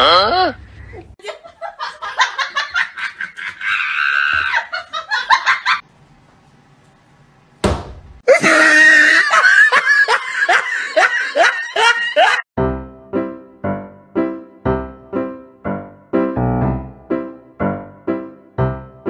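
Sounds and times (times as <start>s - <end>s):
person laughing: 0.4s - 5.8s, 8.3s - 12.4s.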